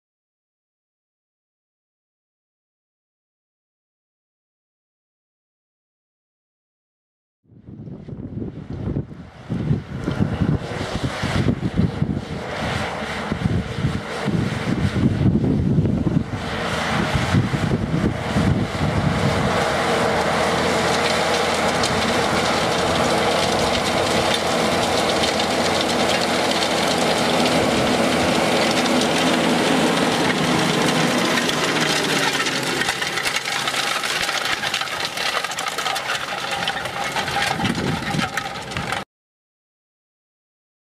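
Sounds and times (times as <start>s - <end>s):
tractor diesel engine under load: 8.6s - 39.0s.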